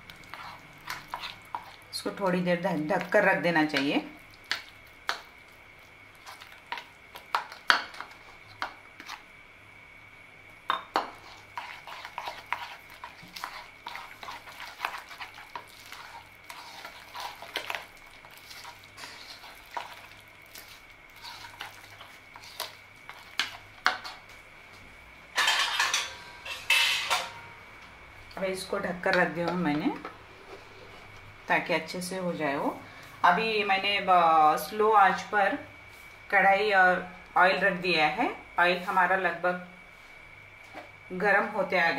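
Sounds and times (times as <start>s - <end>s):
spatula scraping batter in bowl: 0.2s - 1.8s, 11.0s - 24.3s.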